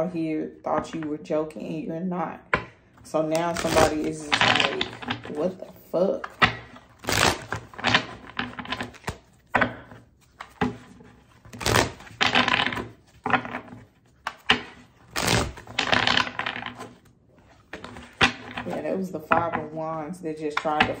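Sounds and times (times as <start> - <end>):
cards being shuffled: 3.3 - 18.8.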